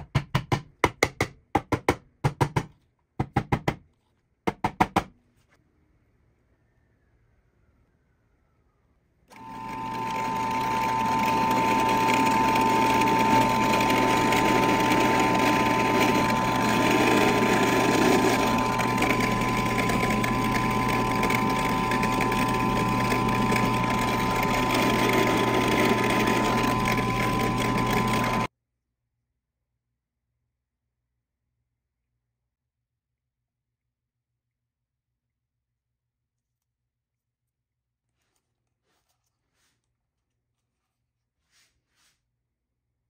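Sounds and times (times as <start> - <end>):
drill press whining: 9.3 - 28.5.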